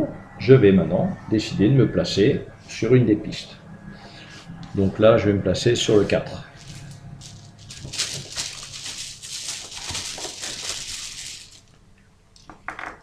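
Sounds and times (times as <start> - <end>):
bag rustling: 6.6 - 11.8.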